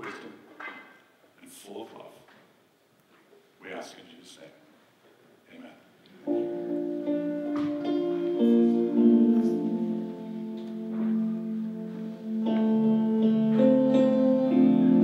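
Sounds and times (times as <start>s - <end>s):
guitar and keyboard chords: 6.2s - 15.0s.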